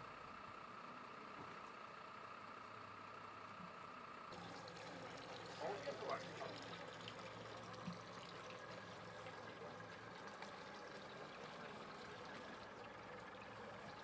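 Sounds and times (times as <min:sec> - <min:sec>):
faint engine idling: 0:00.0 - 0:14.0
running water hiss: 0:04.4 - 0:14.0.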